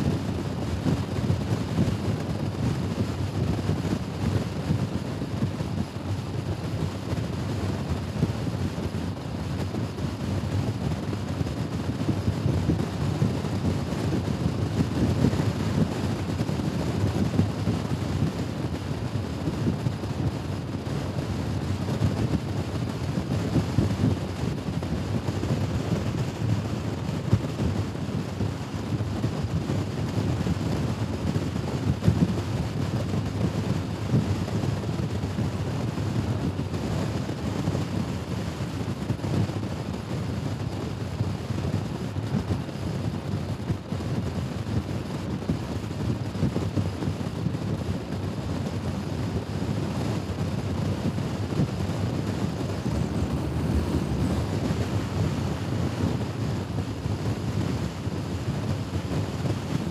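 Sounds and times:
wind rush over microphone: 0.0 - 59.9
scooter running: 52.3 - 56.7.

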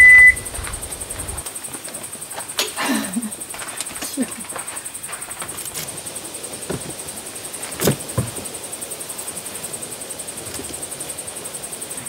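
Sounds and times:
faint high pulsing: 0.0 - 1.4
background hiss: 0.0 - 12.0.

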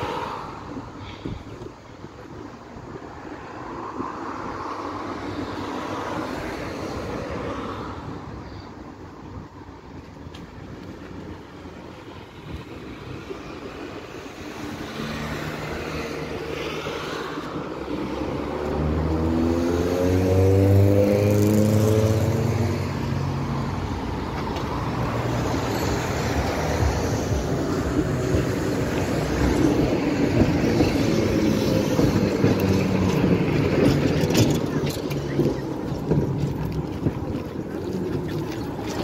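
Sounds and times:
tram approaching on tracks: 0.0 - 39.0
tram motor drone: 23.0 - 38.8.

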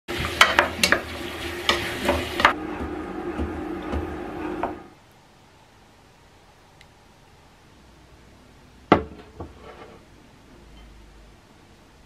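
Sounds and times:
spatula knocking and scraping pot: 0.1 - 4.9
stirring thick stew: 0.1 - 4.9
food sizzling in a pot: 0.1 - 5.0
steady hum: 1.6 - 6.1.

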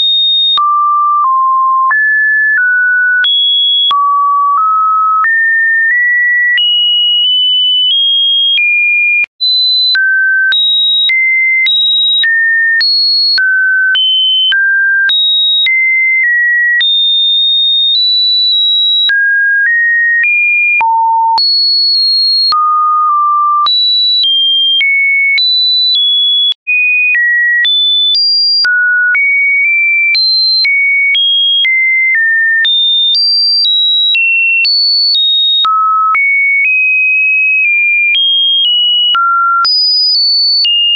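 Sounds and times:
pure-tone test beeps: 0.0 - 2.0, 20.6 - 26.8.

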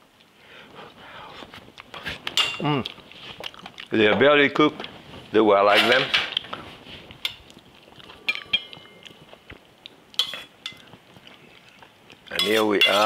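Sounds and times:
metal spoon scraping saucepan: 10.2 - 10.8, 12.3 - 13.0.

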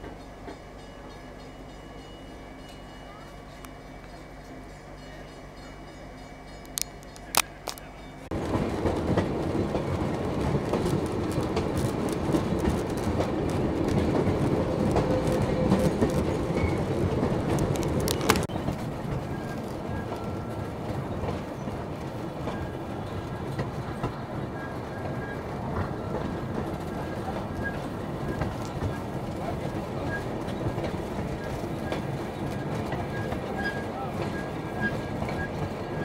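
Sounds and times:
train wheels rumbling on rails: 0.0 - 36.0.

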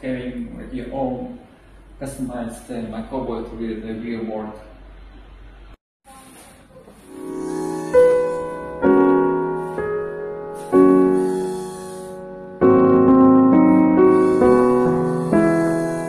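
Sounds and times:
slow piano chords: 7.1 - 16.0.

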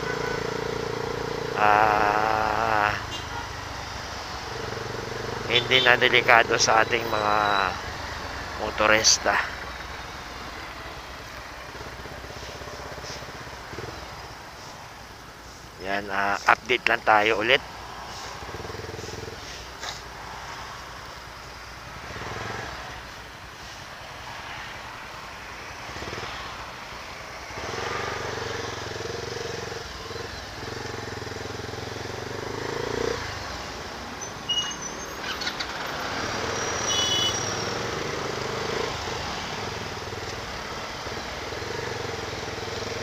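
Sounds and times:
surrounding traffic: 0.0 - 43.0
motorcycle engine running: 7.0 - 14.3, 36.9 - 43.0.

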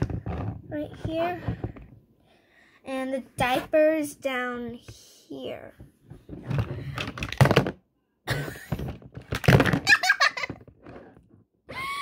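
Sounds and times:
hard plastic toy pieces clacking: 6.5 - 7.8, 8.7 - 11.1.

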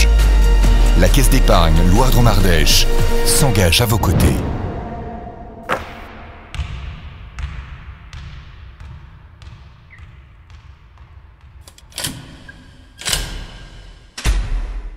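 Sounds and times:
sharp knock: 5.6 - 6.2
basketball bouncing on hardwood: 5.7 - 11.9.

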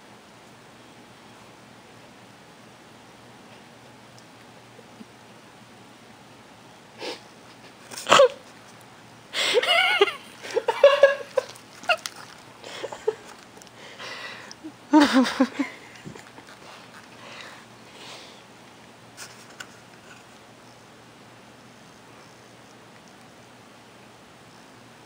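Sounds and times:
dog sniffing and snorting: 15.8 - 18.4.

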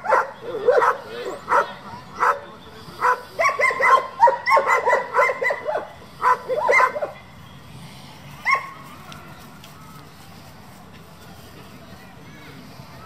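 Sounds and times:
dog barking: 0.0 - 7.2.

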